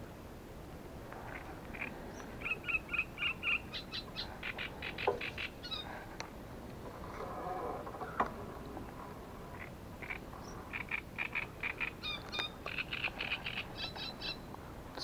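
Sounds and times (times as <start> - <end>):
small bird chirping: 1.7 - 5.9, 9.6 - 14.4.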